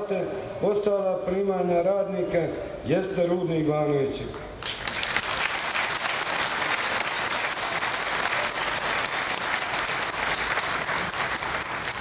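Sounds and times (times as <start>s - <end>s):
crowd applauding: 4.6s - 12.0s.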